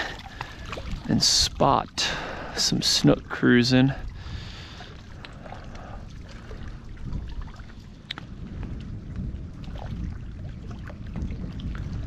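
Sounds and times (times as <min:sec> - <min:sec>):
water lapping: 0:00.0 - 0:12.0
low rumble: 0:03.8 - 0:12.0.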